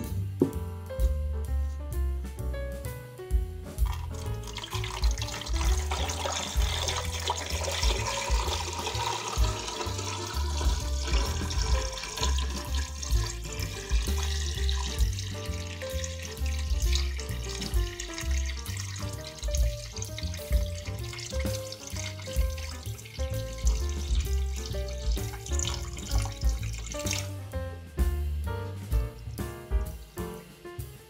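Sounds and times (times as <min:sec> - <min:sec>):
background music: 0:00.0 - 0:31.0
water pouring and splashing: 0:03.8 - 0:27.5.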